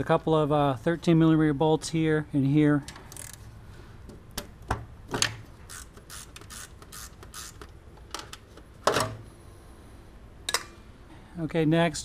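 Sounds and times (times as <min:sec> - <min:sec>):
socket ratchet clicking: 0:03.1 - 0:03.4, 0:05.7 - 0:07.8.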